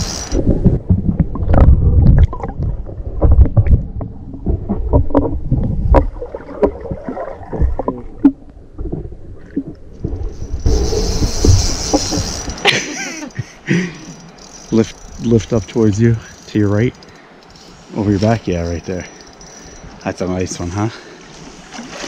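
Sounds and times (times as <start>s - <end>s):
hissing river water: 0.0s - 0.6s, 9.8s - 22.0s
muffled underwater river rumble: 0.4s - 12.4s
underwater knocks and clicks: 0.4s - 12.6s.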